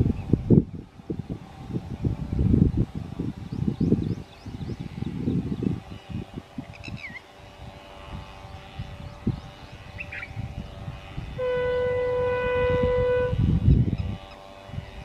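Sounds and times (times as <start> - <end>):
locomotive horn blast: 11.4 - 13.5.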